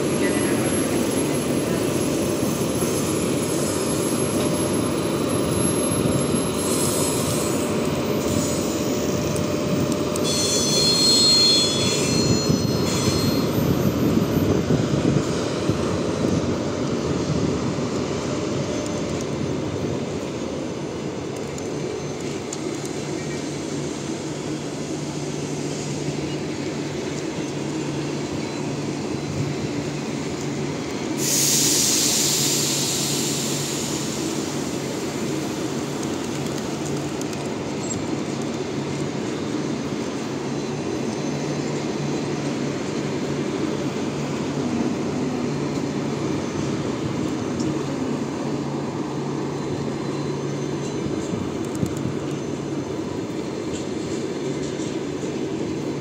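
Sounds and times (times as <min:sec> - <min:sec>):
train wheels rumbling on rails: 0:00.0 - 0:56.0
loud hiss: 0:31.1 - 0:35.4.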